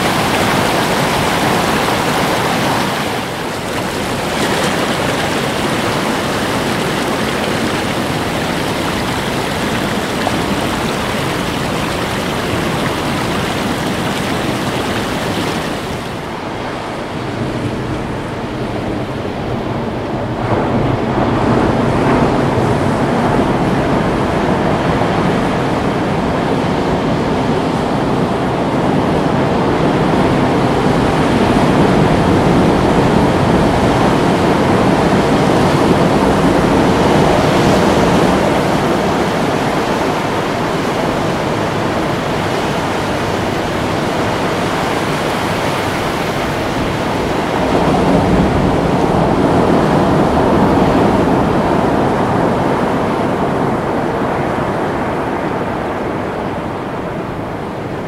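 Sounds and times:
ocean waves breaking: 0.0s - 58.0s.

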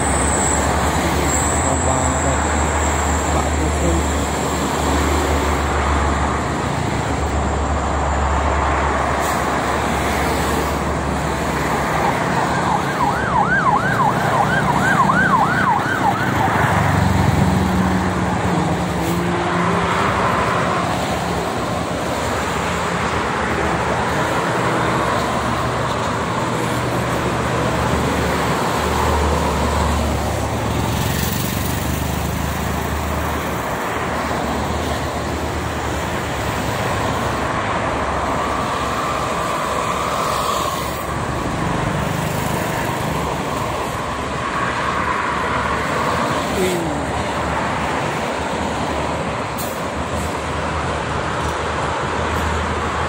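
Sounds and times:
highway traffic: 0.0s - 53.0s
siren yelping: 11.9s - 16.9s.

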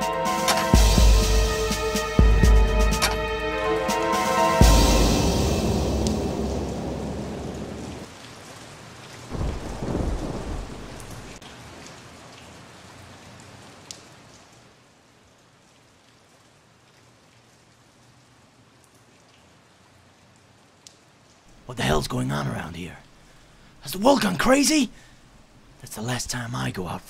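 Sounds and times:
rain hissing: 0.0s - 14.2s, 21.4s - 26.5s
thunder rumbling: 0.6s - 8.1s, 9.3s - 11.4s.

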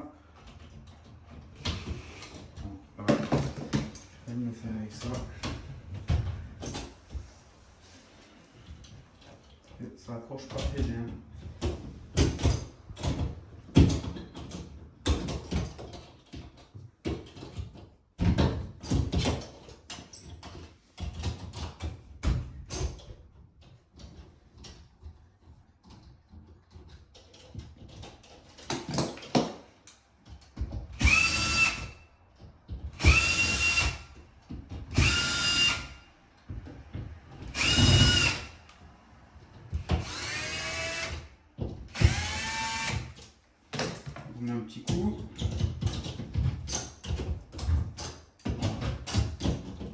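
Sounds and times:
cordless drill driving screws: 31.0s - 32.0s, 33.0s - 34.1s, 34.9s - 36.0s, 37.5s - 38.6s, 39.9s - 41.3s, 41.9s - 43.2s.

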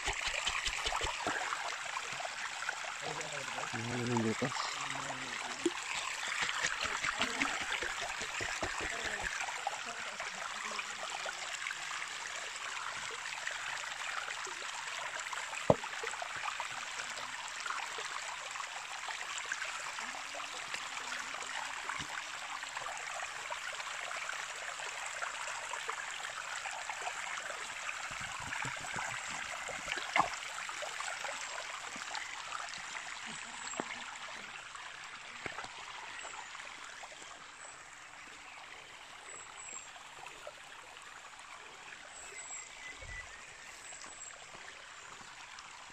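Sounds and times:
stream flowing over rocks: 0.0s - 45.9s.

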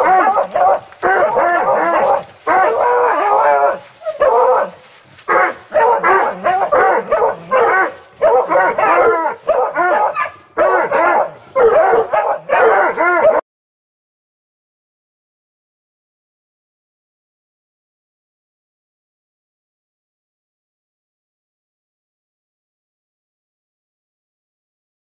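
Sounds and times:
hounds baying and yelping: 0.0s - 13.4s.

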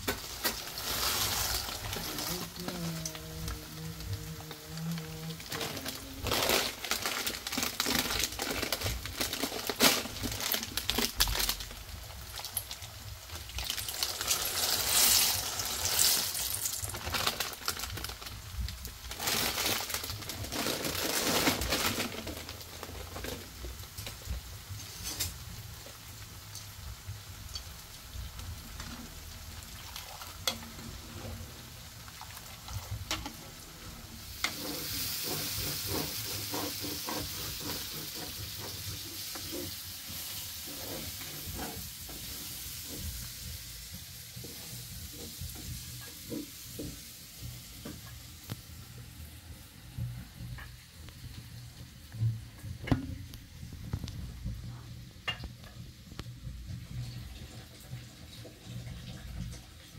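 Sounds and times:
food sizzling in a pan: 0.0s - 59.9s.

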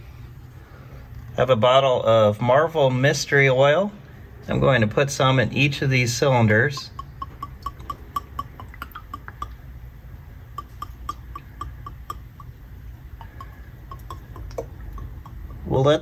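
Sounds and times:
oil glugging from a bottle: 6.8s - 9.8s, 10.4s - 15.7s.

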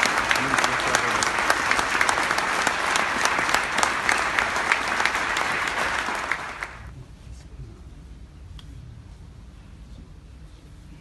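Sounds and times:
crowd applauding: 0.0s - 6.9s.

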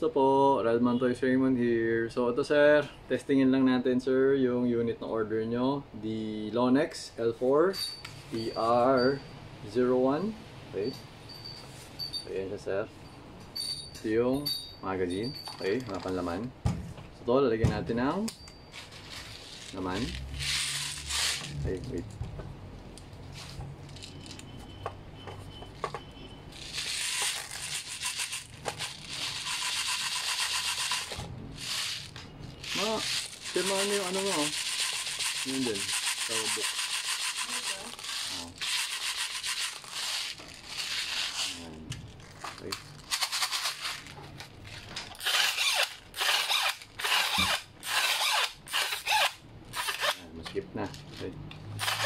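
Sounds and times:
plastic pellets rattling into magazine: 26.6s - 41.6s, 42.3s - 44.2s.

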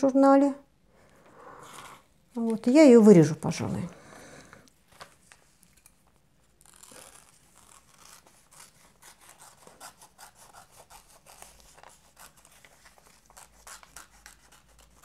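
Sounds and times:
paper rustling: 4.8s - 9.8s
scissors snipping paper: 6.6s - 15.0s.

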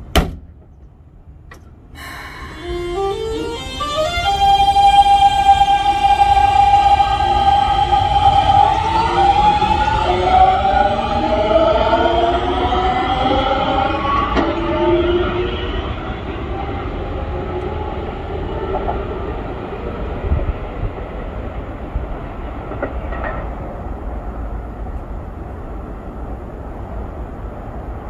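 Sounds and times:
train rumble: 0.0s - 28.0s
electric train motor whine: 2.0s - 17.8s.

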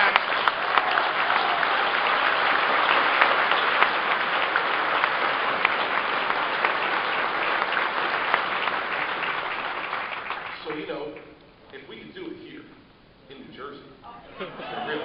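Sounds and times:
audience applauding: 0.0s - 10.7s, 14.4s - 15.0s.

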